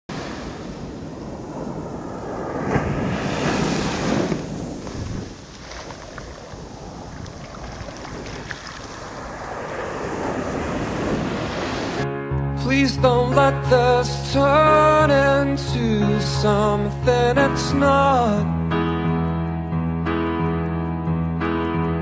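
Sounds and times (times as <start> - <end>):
surf breaking on beach: 0.1 - 12.0.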